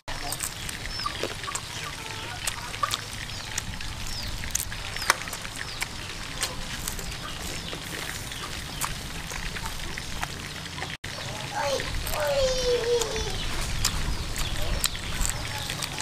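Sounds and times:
bird chirps: 0.2s - 10.3s.

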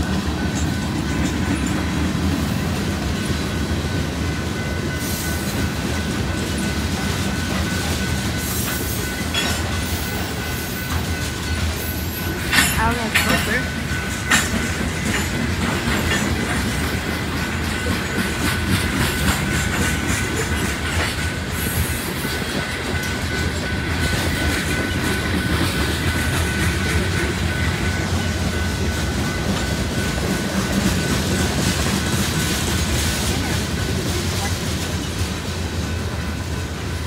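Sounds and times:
wheels clicking over rail joints: 0.0s - 35.3s.

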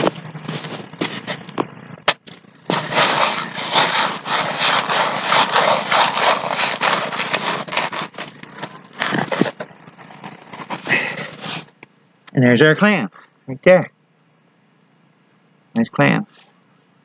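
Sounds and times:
shovel scraping into gritty mud: 2.7s - 8.3s.

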